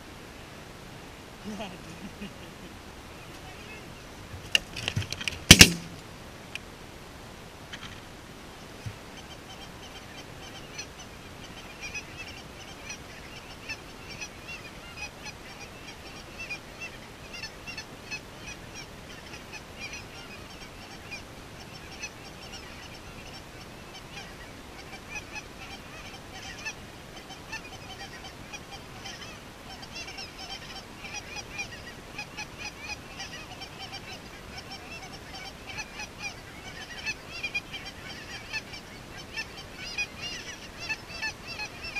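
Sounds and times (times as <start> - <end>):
geese honking: 1.4 - 4.7, 8.6 - 41.9.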